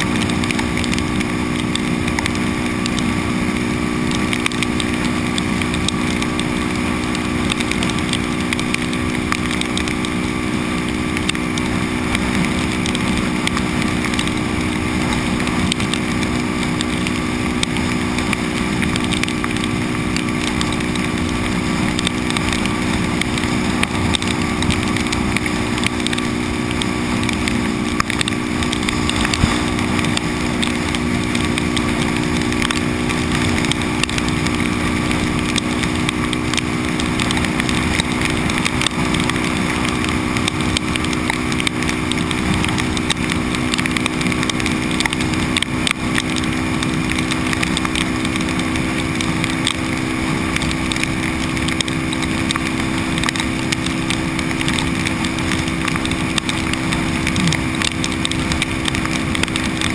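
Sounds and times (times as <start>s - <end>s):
motorcycle engine cruising: 0.0s - 59.9s
wet road noise: 0.0s - 59.9s
wind rush: 11.8s - 37.2s.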